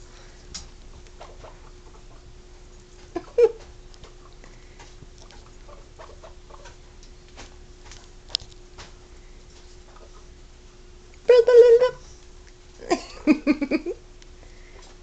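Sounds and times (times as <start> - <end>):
guinea pigs scuffling on bedding: 0.0 - 10.9
faint steady hum: 0.0 - 15.0
guinea pig squeak: 1.2 - 2.3, 3.0 - 3.6, 5.2 - 6.8.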